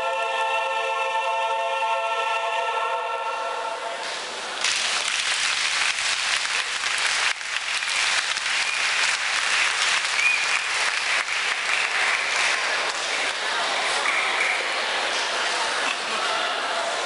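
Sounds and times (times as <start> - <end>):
audience applause: 4.6 - 16.6.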